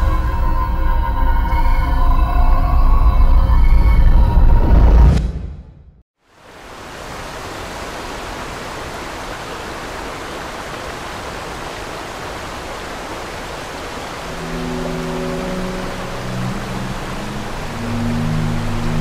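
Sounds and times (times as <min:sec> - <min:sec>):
steady rushing noise: 0:06.5 - 0:19.0
sustained low music notes: 0:14.2 - 0:19.0.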